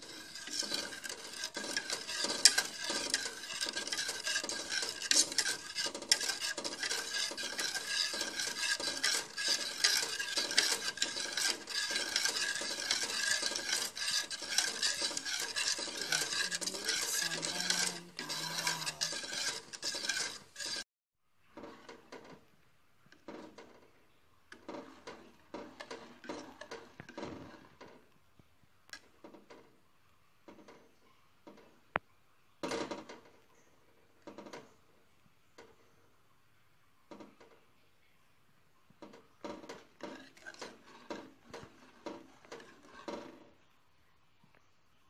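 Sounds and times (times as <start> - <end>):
wire whisk scraping a pan: 0.0 - 20.9, 21.6 - 22.4, 23.1 - 23.9, 24.5 - 28.1, 39.0 - 43.6.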